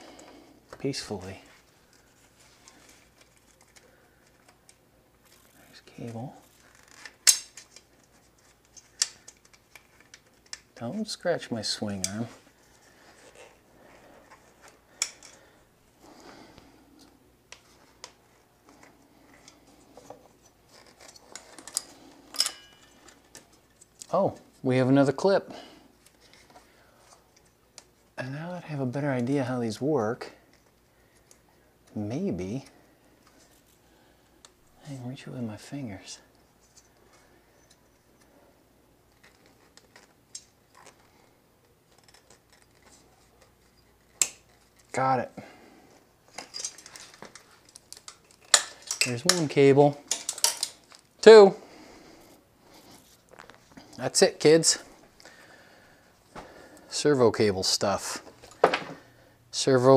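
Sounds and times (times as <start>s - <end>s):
cable rustling and scraping: 0.0s - 24.8s, 36.2s - 55.5s.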